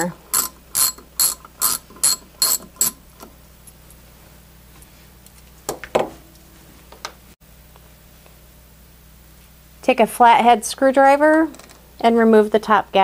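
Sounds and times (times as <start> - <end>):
socket ratchet clicking: 0.0 - 3.0.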